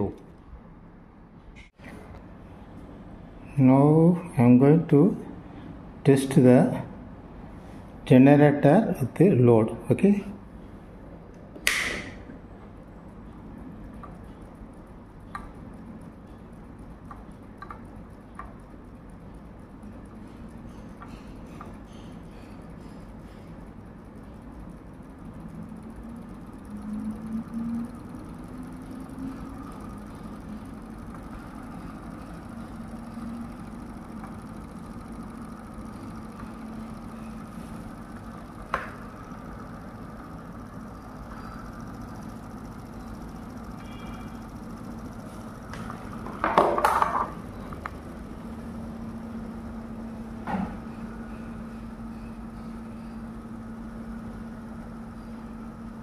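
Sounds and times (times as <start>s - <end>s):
motor-generator humming: 0.0s - 56.0s
sharp click: 11.3s - 12.4s.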